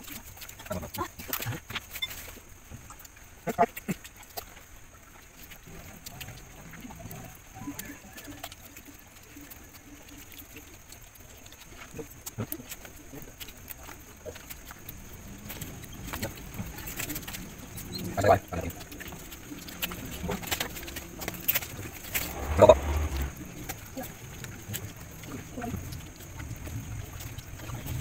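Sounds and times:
eating clicks and smacks: 0:02.9 - 0:28.0
indistinct murmuring voices: 0:11.8 - 0:28.0.

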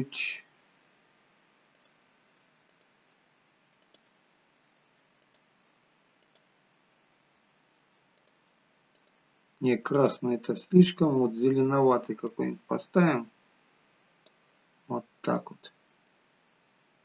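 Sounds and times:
faint computer mouse clicks: 0:01.7 - 0:02.0, 0:02.6 - 0:03.0, 0:03.8 - 0:04.1, 0:05.2 - 0:05.5, 0:06.2 - 0:06.5, 0:08.2 - 0:09.2.

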